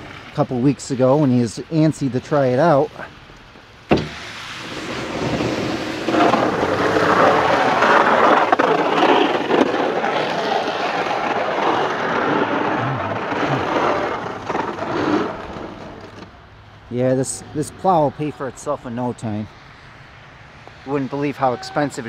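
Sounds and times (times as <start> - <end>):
snow plow scraping snow: 4.0 - 16.4.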